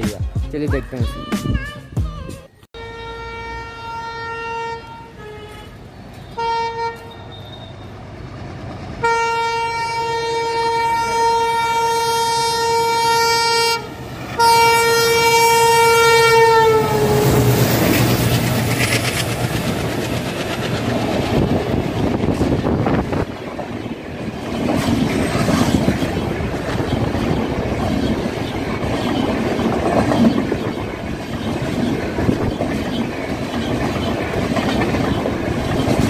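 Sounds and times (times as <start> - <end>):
train horn: 2.8 - 7.9, 9.0 - 17.7
train coaches roaring past: 2.8 - 36.0.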